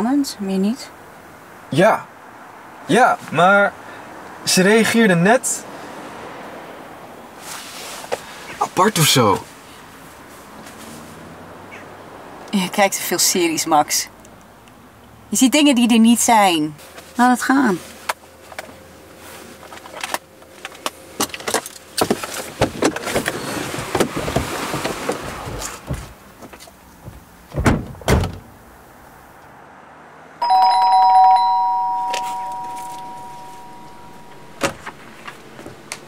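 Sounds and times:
knocks and thuds: 23.8 - 28.5
two-tone doorbell chime: 30.4 - 34.6.

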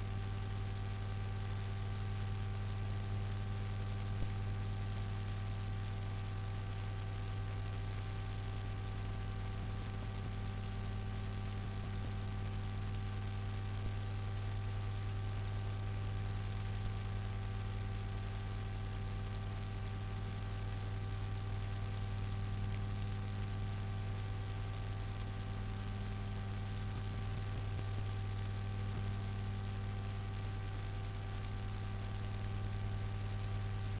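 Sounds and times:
electrical mains hum: 0.0 - 34.0
constant hiss: 3.3 - 34.0.

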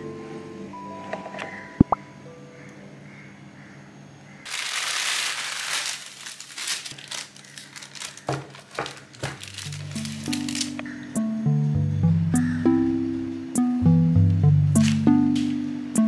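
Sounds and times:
baking parchment crinkling: 4.5 - 11.0.

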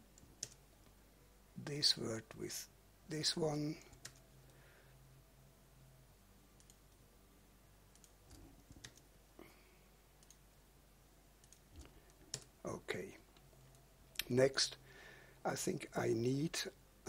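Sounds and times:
low steady hum: 0.0 - 17.0
faint mouse clicks: 6.6 - 7.0, 7.9 - 9.1, 10.2 - 10.4, 11.4 - 12.5.

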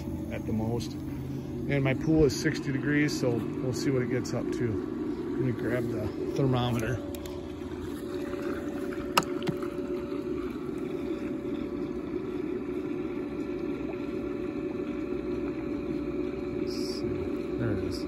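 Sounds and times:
pool pump motor humming: 0.0 - 18.0.

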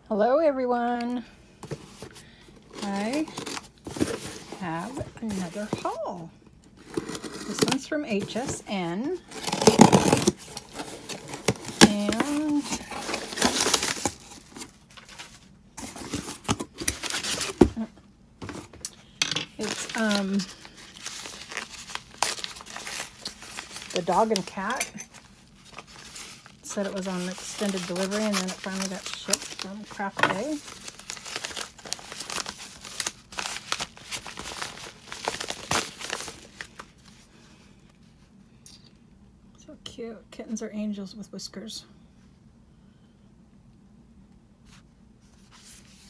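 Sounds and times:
paper envelope crinkling: 1.7 - 6.0, 6.8 - 17.8, 19.6 - 37.2.

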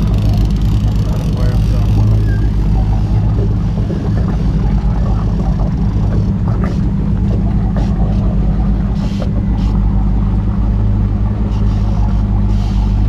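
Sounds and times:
boat engine humming: 0.0 - 13.0.

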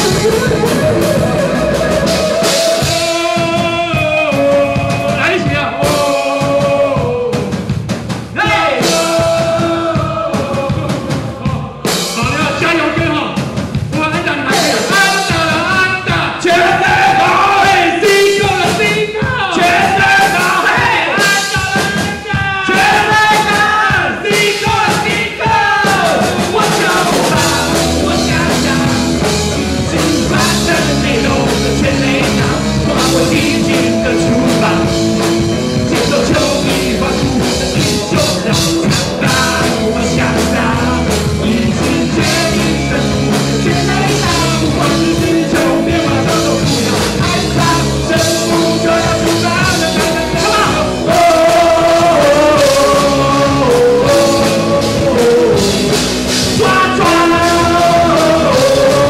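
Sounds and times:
held electric guitar notes: 0.0 - 3.6
voices singing or shouting: 0.0 - 7.7, 8.3 - 13.4, 14.2 - 59.0
live rock band playing: 0.0 - 59.0.

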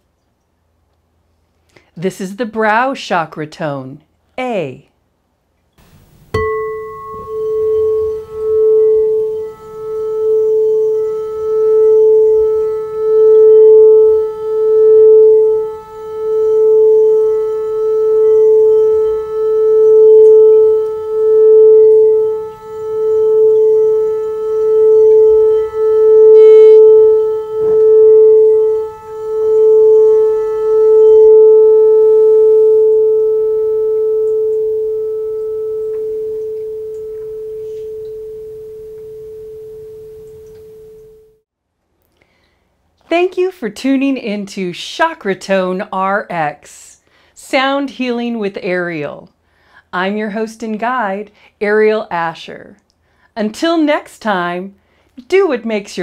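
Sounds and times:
crystal singing bowl tone: 5.8 - 41.4.

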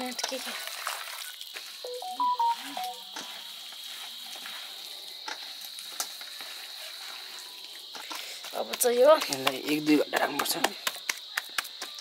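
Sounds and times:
thin steady high tone: 1.8 - 4.5
hands kneading meat squelching: 3.2 - 12.0.

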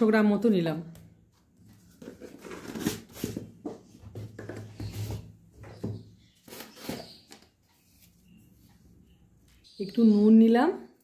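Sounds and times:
kitchen items rustling and knocking: 1.5 - 7.4.

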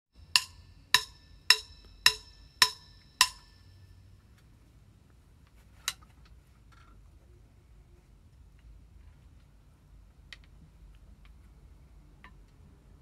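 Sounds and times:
ringing percussive clicks: 0.3 - 3.7.

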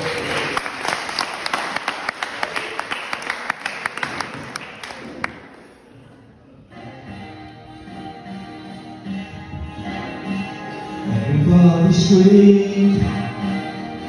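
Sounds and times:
audience clapping: 0.0 - 5.8
music: 5.5 - 14.0.

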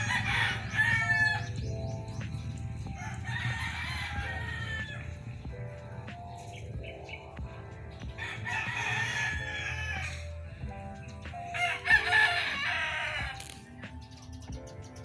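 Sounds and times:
rooster crowing: 0.0 - 1.6, 2.9 - 5.3, 8.2 - 10.4, 11.5 - 13.5.

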